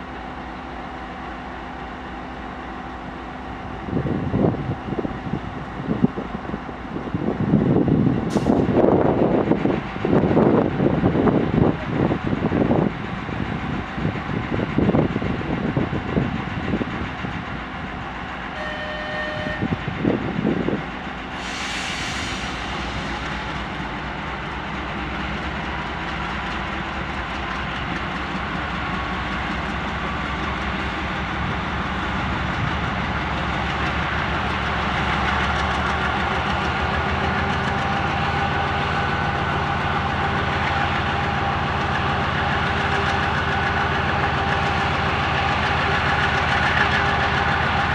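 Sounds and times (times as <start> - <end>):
diesel locomotive engine drone: 0.0 - 47.9
brief high tone: 18.6 - 19.7
air hissing: 21.3 - 23.5.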